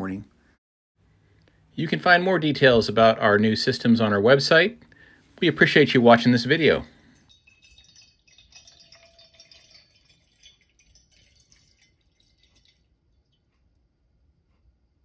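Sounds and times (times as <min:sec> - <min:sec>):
water trickling into metal tumbler: 0:06.2 - 0:13.6
water dripping ticks: 0:07.0 - 0:13.8.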